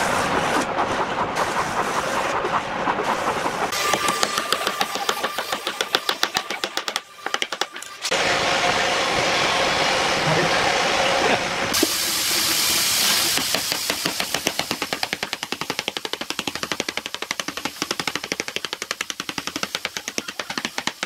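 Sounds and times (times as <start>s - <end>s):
wooden mallet tapping wood: 4.1s - 7.9s.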